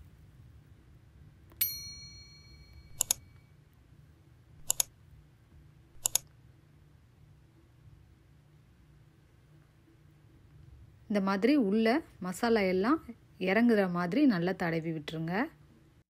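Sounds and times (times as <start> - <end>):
bright chime: 1.6 - 3.0
double mouse clicks: 2.9 - 3.2, 4.6 - 4.9, 6.0 - 6.3.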